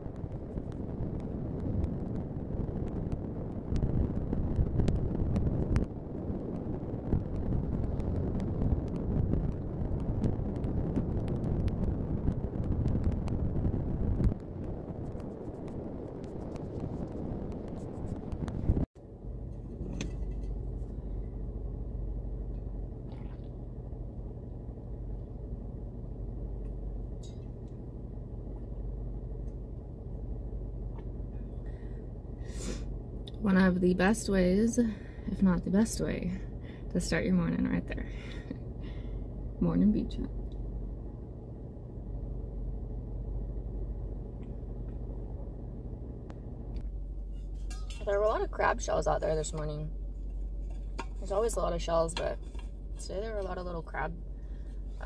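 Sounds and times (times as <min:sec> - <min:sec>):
rushing wind noise: 0:00.0 - 0:19.0
low rumble inside car: 0:00.0 - 0:55.0.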